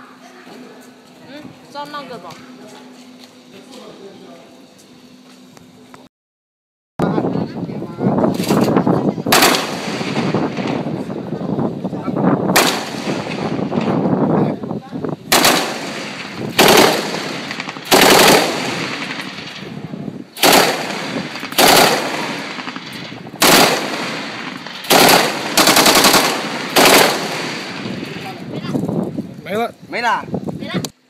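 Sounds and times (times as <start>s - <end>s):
machine gun firing bursts: 9.3s - 11.0s, 12.5s - 14.0s, 15.3s - 28.4s.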